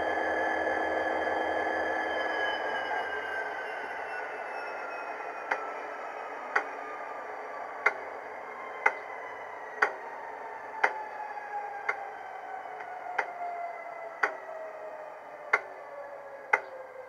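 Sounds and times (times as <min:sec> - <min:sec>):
model locomotive engine whine: 0:00.0 - 0:17.0
sharp ticks: 0:08.8 - 0:09.0, 0:09.8 - 0:10.0, 0:14.2 - 0:14.4, 0:15.5 - 0:15.7, 0:16.5 - 0:16.7.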